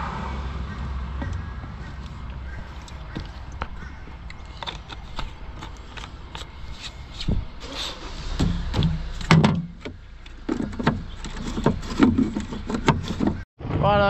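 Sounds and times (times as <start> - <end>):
heavy low thumps: 0.0 - 4.2
clicks and clunks of gear: 2.8 - 7.3.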